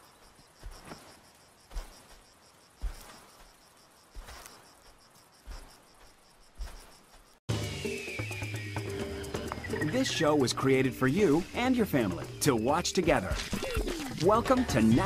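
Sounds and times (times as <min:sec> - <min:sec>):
elephant footsteps on dry grass: 0:00.0 - 0:07.4
insects chirping: 0:00.0 - 0:15.0.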